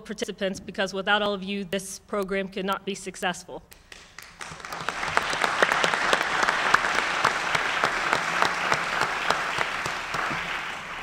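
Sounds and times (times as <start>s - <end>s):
audience applauding: 3.9s - 11.0s.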